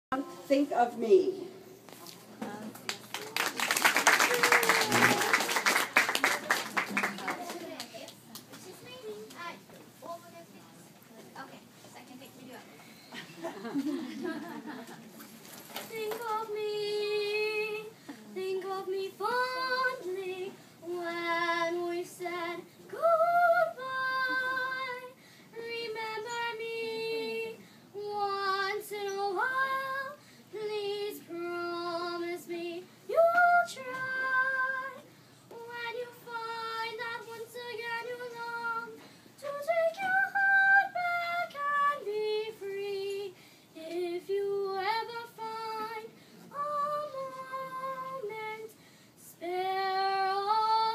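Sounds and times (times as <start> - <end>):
girl singing: 15.8 - 50.9.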